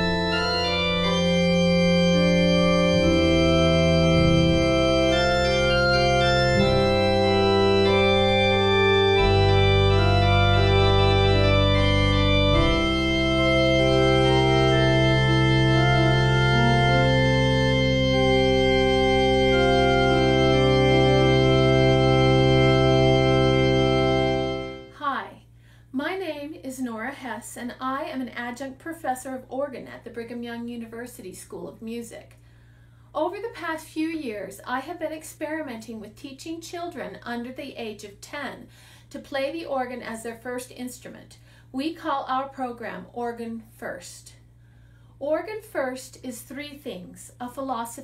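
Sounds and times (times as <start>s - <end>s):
organ playing slow chords: 0.0s - 25.0s.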